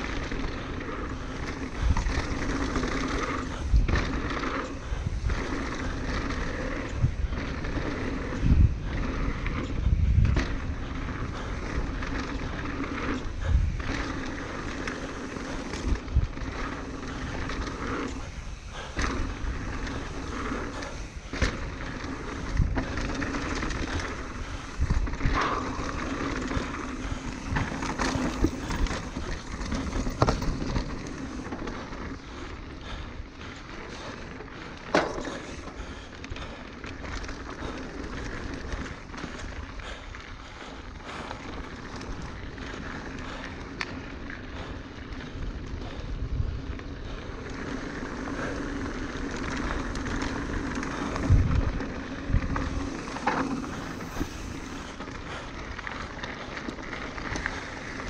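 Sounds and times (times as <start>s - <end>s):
bike knocking and clattering: 0.0s - 58.0s
bike tyres rolling on dirt: 0.0s - 58.0s
rushing air: 50.3s - 55.4s.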